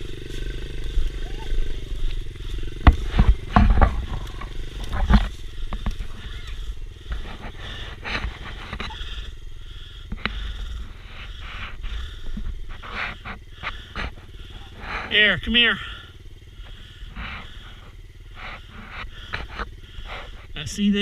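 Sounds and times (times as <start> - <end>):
dirt bike engine idling: 0.0 - 21.0
sharp knocks and thumps: 2.4 - 9.2.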